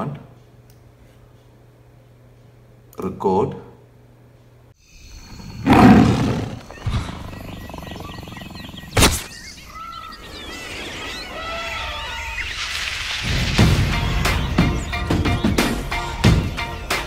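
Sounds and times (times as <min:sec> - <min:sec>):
birds chirping and calling: 0:04.8 - 0:17.0
music: 0:13.2 - 0:17.0.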